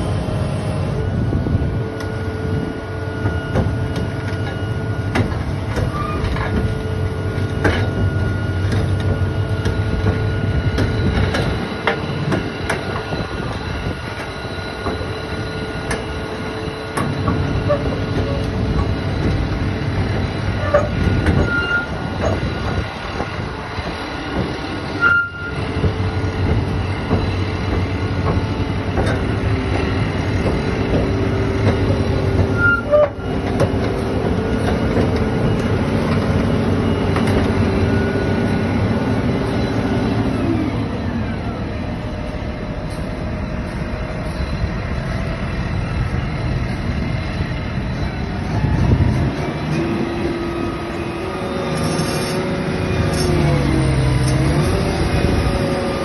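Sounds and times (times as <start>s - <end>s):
excavator diesel engine hum: 0.0s - 56.0s
short squeaks: 20.6s - 22.4s, 24.9s - 25.6s, 32.0s - 33.3s.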